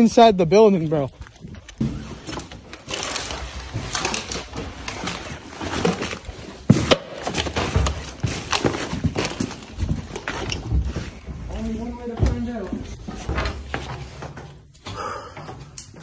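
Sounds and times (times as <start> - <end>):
footsteps on hard floor: 7.4 - 16.0.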